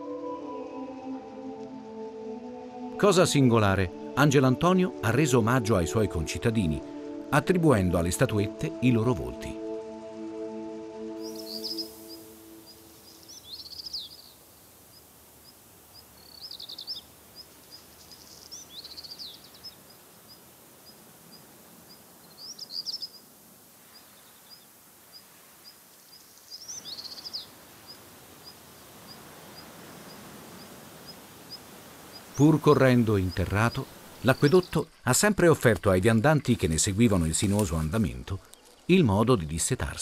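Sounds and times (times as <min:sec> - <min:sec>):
soft background hiss: 0:11.1 - 0:40.0
high evenly spaced ticks: 0:11.2 - 0:35.0
small birds singing: 0:11.2 - 0:35.0, 0:35.6 - 0:40.0.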